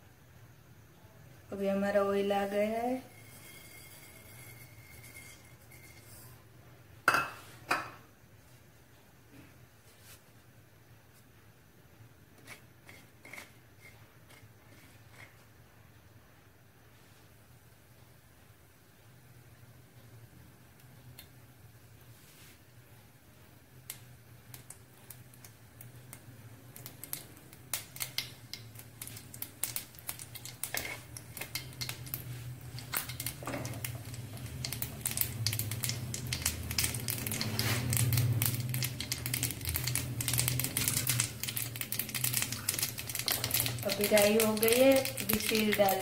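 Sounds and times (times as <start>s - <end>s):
seeds popping in hot oil: 1.5s - 6.4s, 23.8s - 46.0s.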